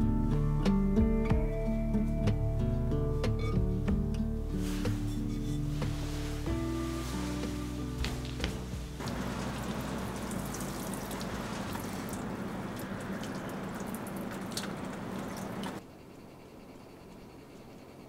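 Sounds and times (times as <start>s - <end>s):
water pouring and splattering: 6.8s - 15.8s
water drips: 9.0s - 15.8s.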